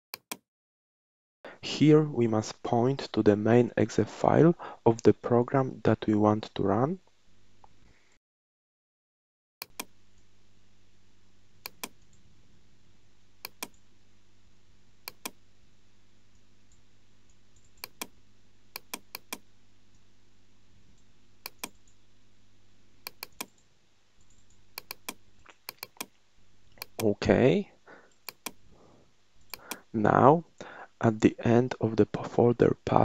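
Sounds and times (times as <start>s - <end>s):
low steady hum: 1.6s - 8.1s, 9.6s - 33.0s
mouse button clicking: 11.7s - 12.0s, 13.4s - 13.7s, 15.1s - 15.4s, 21.5s - 21.8s, 23.1s - 23.5s, 24.8s - 26.1s, 26.8s - 27.0s.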